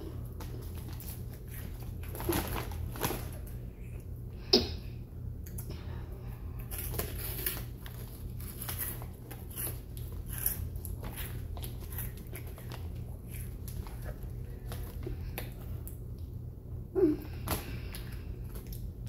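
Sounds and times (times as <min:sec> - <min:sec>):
steady low hum: 0:00.0 - 0:19.0
chips crunching while chewed: 0:06.6 - 0:15.0.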